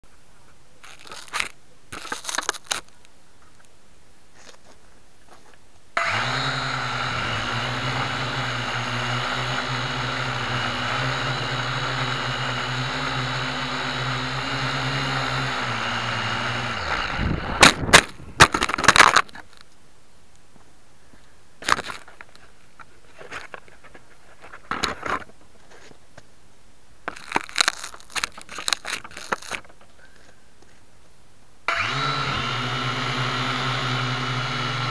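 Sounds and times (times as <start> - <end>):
quadcopter motors whirring: 6.0 - 17.9, 31.7 - 34.9.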